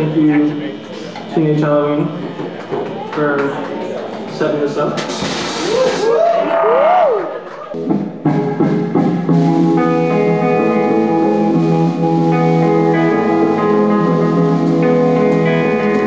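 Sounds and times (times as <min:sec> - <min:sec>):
sharp drum strikes: 0:05.0 - 0:06.2
live rock band playing: 0:07.8 - 0:16.0
sustained electric guitar chords: 0:07.8 - 0:16.0.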